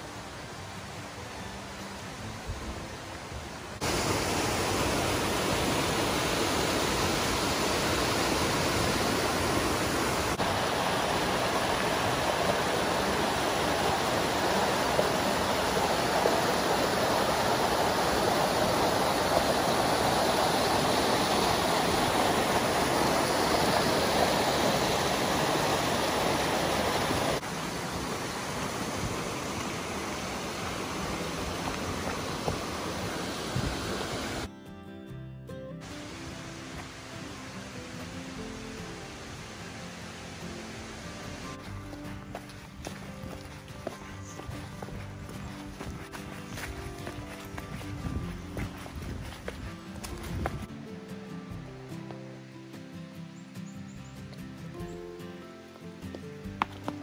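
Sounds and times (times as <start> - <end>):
brook rushing over rocks: 3.8 - 34.5, 41.4 - 50.8, 56.0 - 57.0.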